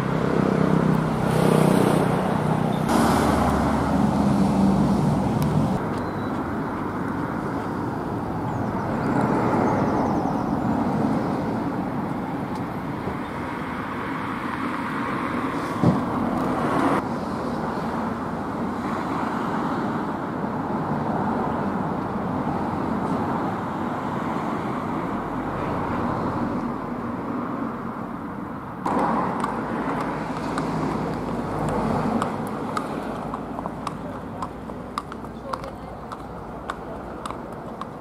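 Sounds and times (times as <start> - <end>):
distant road traffic: 0.0 - 38.0
short thump: 15.8 - 16.1.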